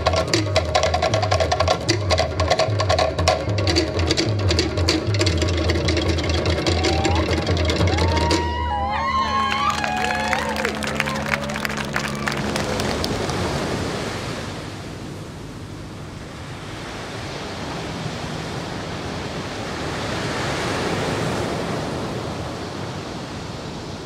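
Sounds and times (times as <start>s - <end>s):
people clapping: 6.8s - 13.6s
even rushing noise: 10.1s - 22.5s.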